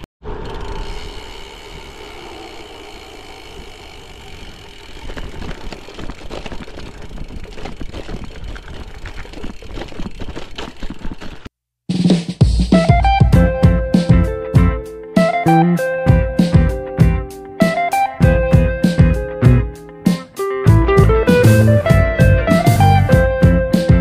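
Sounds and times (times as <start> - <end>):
bike tyre noise on gravel: 0.2 - 11.5
bike rattling over rough ground: 0.4 - 11.5.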